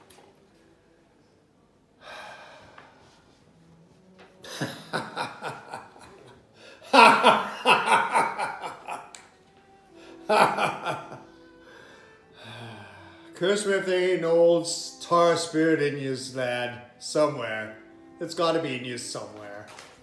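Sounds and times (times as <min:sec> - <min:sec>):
man laughing heartily: 0:04.4 - 0:09.2, 0:10.1 - 0:11.3.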